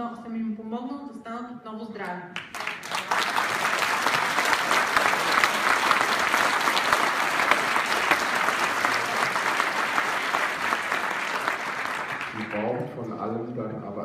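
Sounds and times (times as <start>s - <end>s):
audience applauding: 2.4s - 13.0s.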